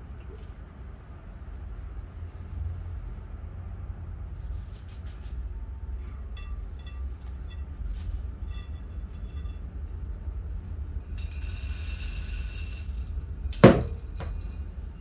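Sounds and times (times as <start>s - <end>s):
steady low hum: 0.0s - 15.0s
plastic and glass clinking: 11.2s - 14.7s.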